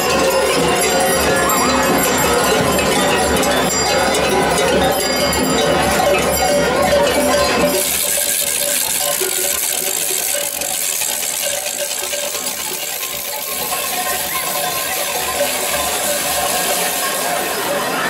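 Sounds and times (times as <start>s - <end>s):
cowbells clanking and jingling: 0.0s - 18.0s.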